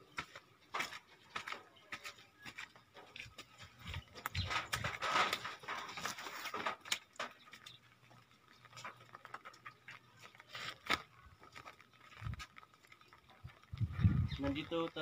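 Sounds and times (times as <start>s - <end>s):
footsteps in sandals on wet concrete: 0.0s - 15.0s.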